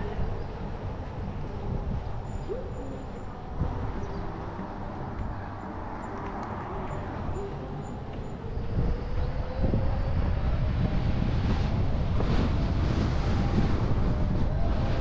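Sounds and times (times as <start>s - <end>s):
car road and wind noise: 0.0s - 15.0s.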